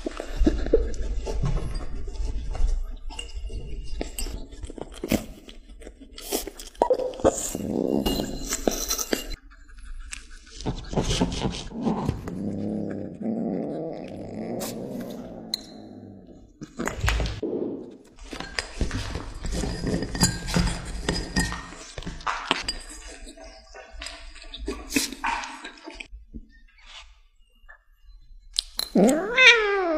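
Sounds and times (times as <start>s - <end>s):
low drawn-out growl: 12.2s - 16.6s.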